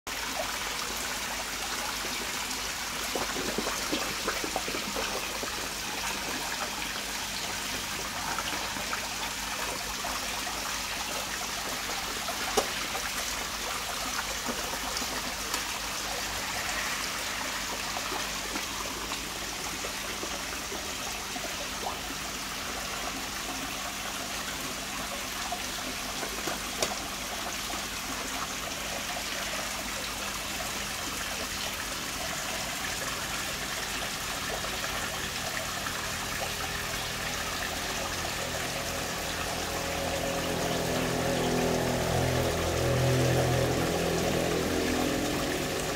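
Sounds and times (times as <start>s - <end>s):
water splashing into pond: 0.1s - 45.9s.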